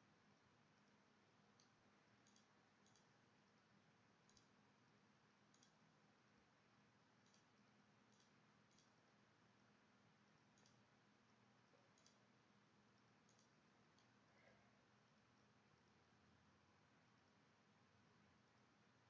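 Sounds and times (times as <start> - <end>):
faint low hum: 0.0 - 19.0
computer mouse clicks: 0.8 - 4.6, 5.4 - 5.9, 7.1 - 9.1, 10.4 - 10.9, 11.7 - 12.3, 13.0 - 14.2.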